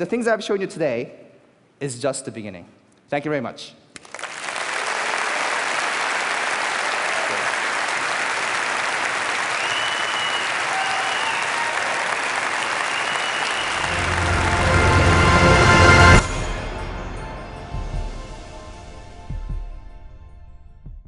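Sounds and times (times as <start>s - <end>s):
audience applauding: 4.0s - 16.2s.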